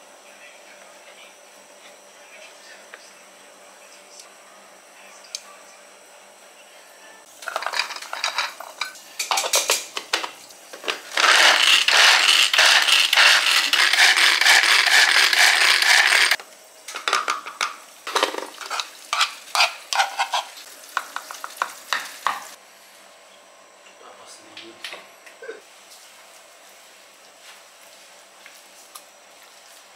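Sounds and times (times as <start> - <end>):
food chopper rapid clatter: 10.9 - 16.4.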